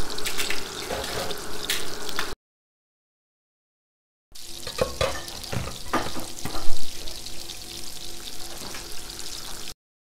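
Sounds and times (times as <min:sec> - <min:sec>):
kitchenware knocking and clinking: 0:04.6 - 0:06.8.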